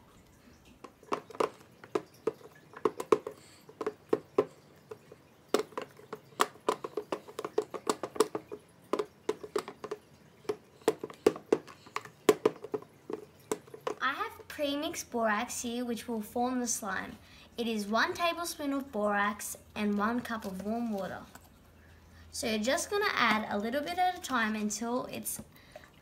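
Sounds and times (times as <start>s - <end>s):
spoon stirring thick foamy mix: 0.0s - 15.0s, 18.8s - 21.6s.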